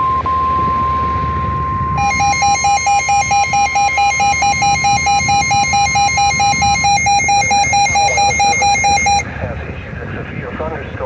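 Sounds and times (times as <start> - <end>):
rapid electronic beeping: 2.0 - 9.2
steady high tone: 2.0 - 9.2.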